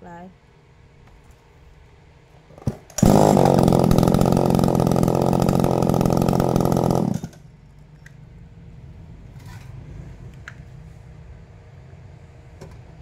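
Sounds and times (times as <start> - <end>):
chainsaw starting and running: 2.7 - 7.5.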